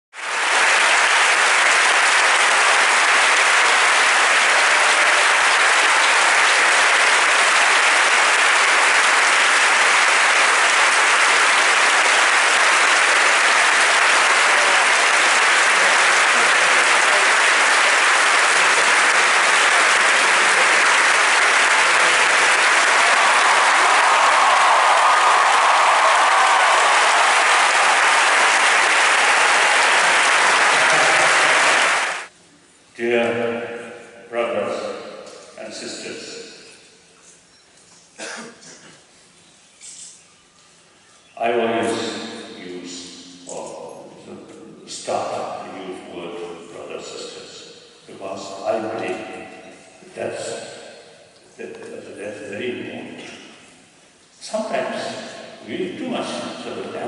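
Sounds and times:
large audience applauding: 0:00.2 - 0:32.3.

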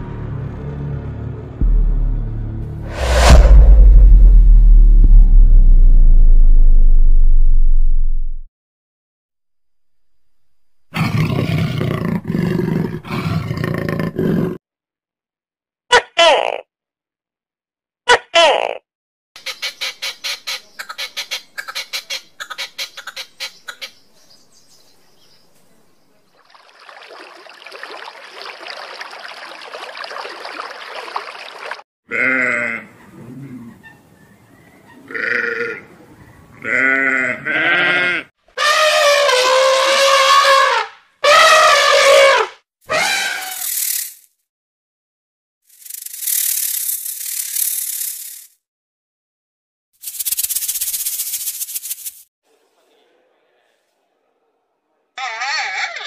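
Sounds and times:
rushing noise: 0:01.6 - 0:08.4
goat bleating: 0:32.1 - 0:32.9, 0:35.1 - 0:35.8, 0:36.6 - 0:38.3.

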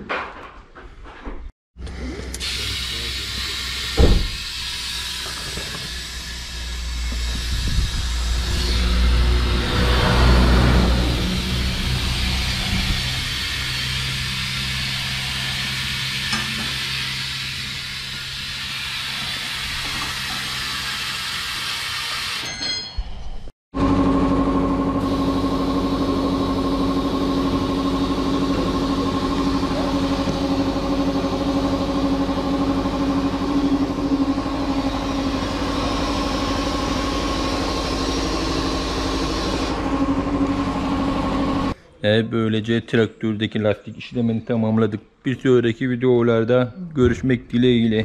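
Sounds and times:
engine idling: 0:24.0 - 0:41.8.

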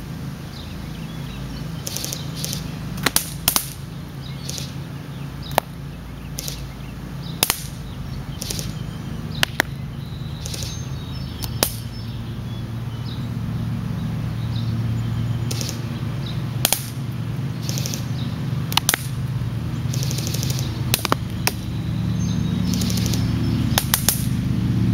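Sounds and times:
steady low hum: 0:00.0 - 0:24.9
pellets striking a board: 0:16.6 - 0:17.0, 0:23.8 - 0:24.3.

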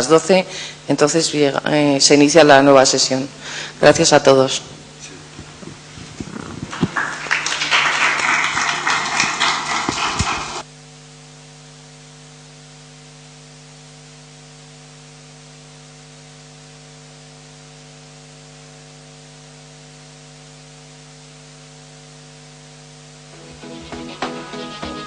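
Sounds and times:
steady electrical hum: 0:00.0 - 0:25.0
music: 0:23.3 - 0:25.0.

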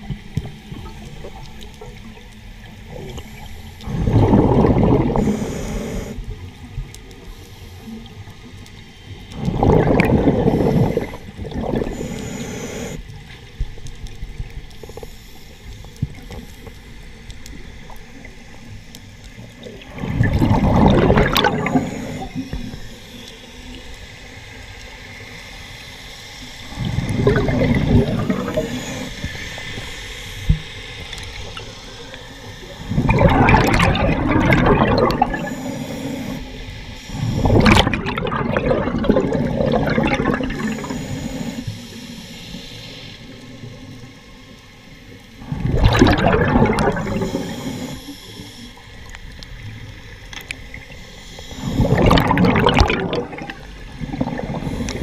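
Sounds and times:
underwater exhaled bubbles: 0:00.0 - 0:25.2, 0:26.5 - 0:55.0.

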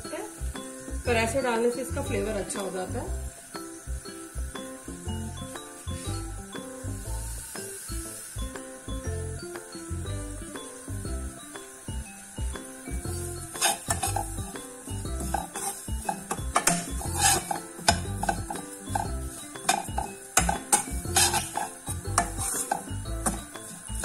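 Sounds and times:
soft background music: 0:00.0 - 0:24.0
metal spoon scraping pan: 0:13.5 - 0:14.4, 0:15.2 - 0:24.0.

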